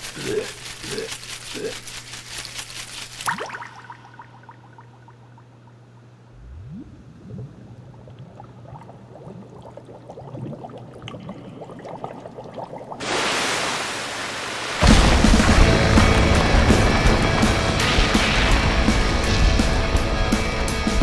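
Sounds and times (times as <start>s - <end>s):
low steady hum: 0.0s - 13.0s
water bubbling and gurgling: 3.3s - 13.1s
loud rushing noise: 13.0s - 21.0s.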